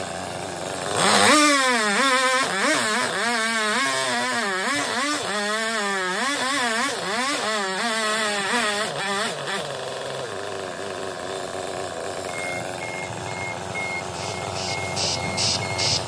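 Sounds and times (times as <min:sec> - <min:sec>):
chainsaw engine idling: 0:00.0 - 0:16.0
short electronic beeps: 0:12.2 - 0:16.0.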